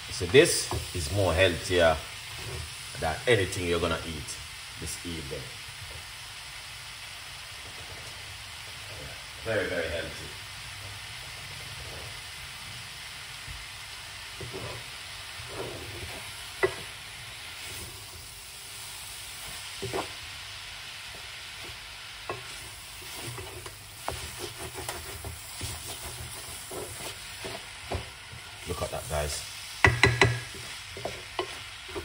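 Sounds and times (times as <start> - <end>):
frying sizzle: 0.0 - 32.0
spoon knocking and scraping pot: 15.6 - 16.9, 22.3 - 28.1, 29.8 - 32.0.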